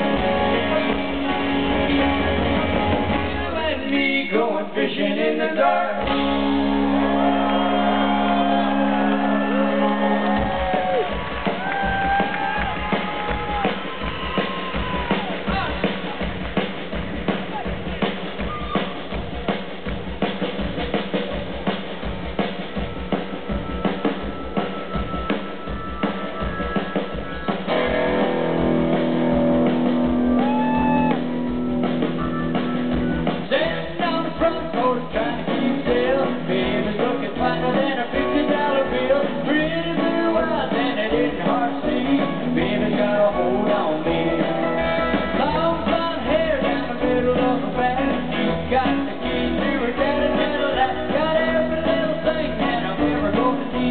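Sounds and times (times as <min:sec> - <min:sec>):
guitar and keyboard chords: 0:00.0 - 0:04.2, 0:05.2 - 0:11.3, 0:22.8 - 0:53.9
man singing: 0:00.0 - 0:11.1, 0:32.5 - 0:53.9
drum kit beat: 0:00.0 - 0:53.9.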